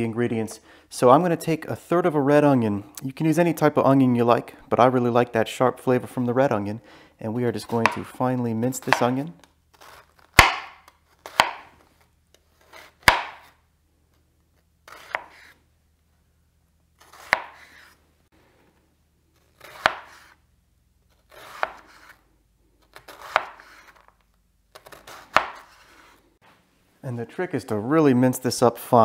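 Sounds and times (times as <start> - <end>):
knife chopping onion on board: 7.7 - 8.1, 8.8 - 9.2, 10.3 - 11.7, 13.0 - 13.5, 14.9 - 15.6, 17.0 - 17.9, 19.6 - 20.4, 21.3 - 22.2, 23.0 - 23.9, 24.8 - 25.8.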